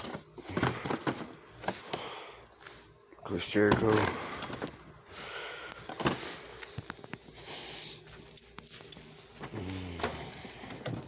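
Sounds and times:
plastic packaging clicks and crinkles: 0:05.7 - 0:07.4.

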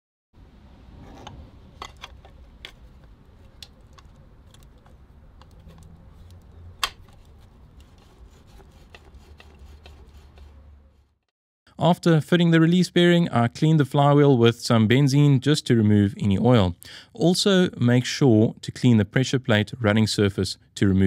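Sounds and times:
hands rubbing on metal parts: 0:01.8 - 0:11.2.

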